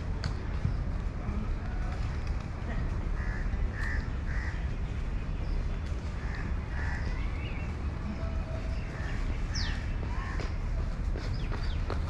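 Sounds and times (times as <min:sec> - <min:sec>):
low outdoor rumble: 0:00.0 - 0:12.0
crows cawing: 0:03.2 - 0:04.7, 0:06.2 - 0:07.2.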